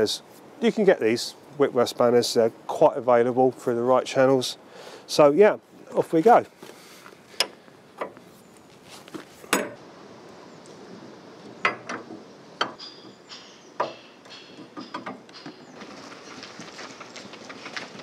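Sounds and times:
sharp knocks: 0:11.6 - 0:15.7
metallic ringing: 0:12.6 - 0:15.8.

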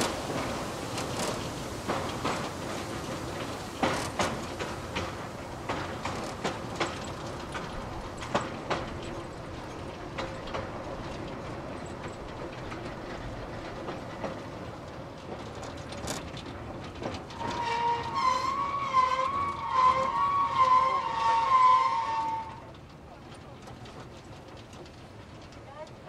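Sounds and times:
rail cart rolling on track: 0:00.0 - 0:26.0
steel wheels clicking over rails: 0:00.0 - 0:26.0
high wavering squeal: 0:17.4 - 0:22.7.

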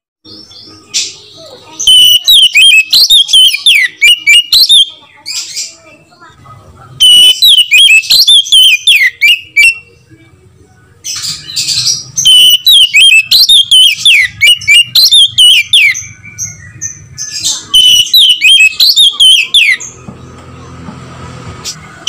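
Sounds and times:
bird singing whistled notes: 0:01.8 - 0:05.0, 0:07.0 - 0:10.0, 0:11.2 - 0:20.0.

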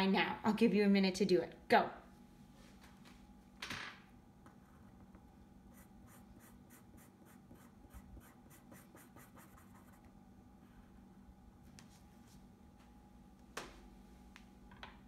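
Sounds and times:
pencil scratching on paper: 0:05.7 - 0:10.1.

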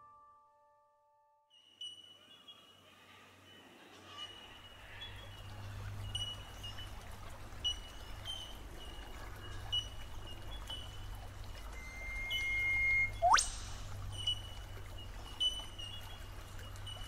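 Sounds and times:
creek trickling over stones: 0:04.7 - 0:17.0
short high chirps: 0:11.8 - 0:13.8.

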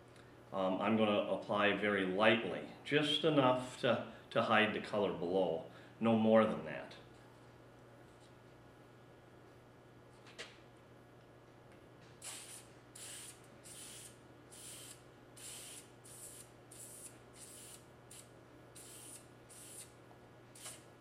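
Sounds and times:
aerosol sprayer hissing bursts: 0:12.2 - 0:19.9, 0:20.6 - 0:20.9.

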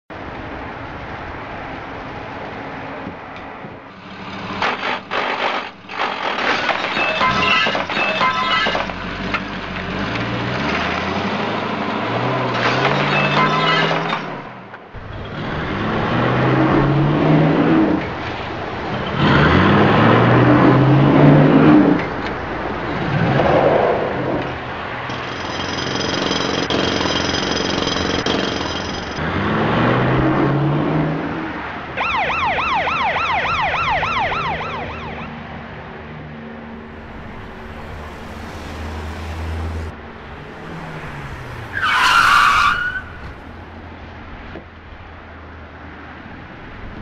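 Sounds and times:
engines revving: 0:03.9 - 0:14.4, 0:15.0 - 0:31.8, 0:34.2 - 0:44.6
police siren warbling: 0:32.0 - 0:35.4
tyre screech: 0:36.8 - 0:43.7.

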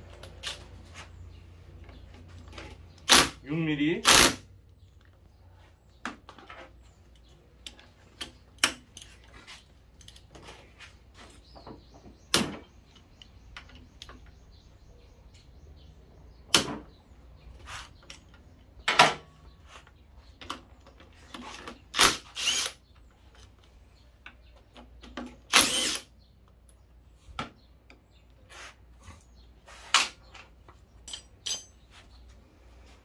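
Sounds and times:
power tool spinning a socket: 0:22.0 - 0:22.8.

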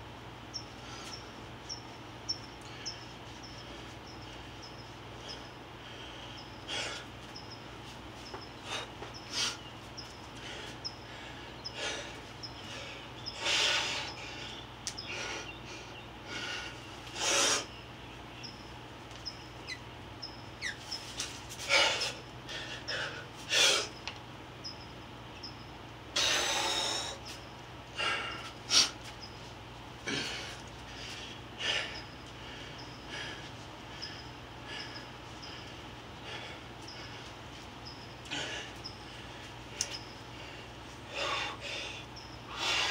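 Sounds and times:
faint low hum: 0:00.0 - 0:42.9
person breathing hard: 0:30.0 - 0:37.4, 0:38.3 - 0:42.9.

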